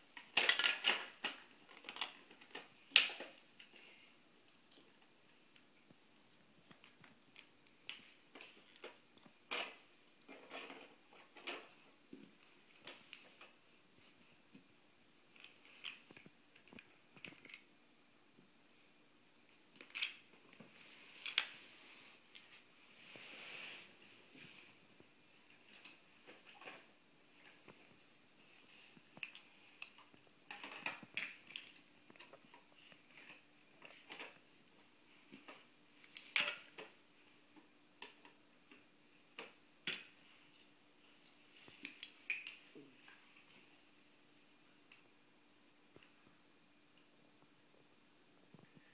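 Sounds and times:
plastic blocks clattering: 0.1 - 3.7, 29.2 - 34.4
plastic toy blocks clacking: 0.2 - 3.4.

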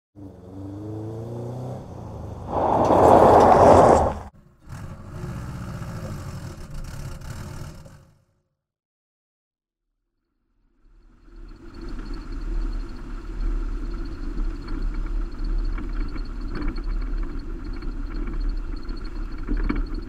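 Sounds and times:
car engine revving and running: 0.2 - 8.2.

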